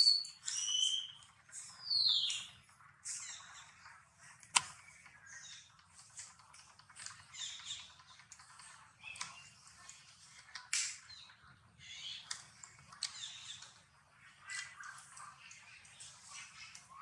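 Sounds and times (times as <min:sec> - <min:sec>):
animal chirps and squeaks: 0:00.0 - 0:03.8.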